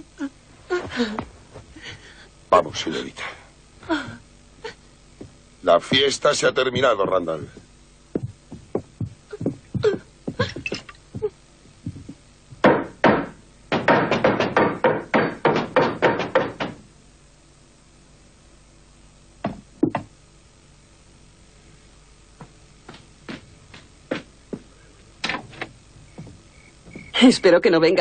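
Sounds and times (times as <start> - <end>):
boots on wooden floor: 0.7 - 1.7, 5.2 - 12.6, 22.4 - 24.7, 25.3 - 27.2.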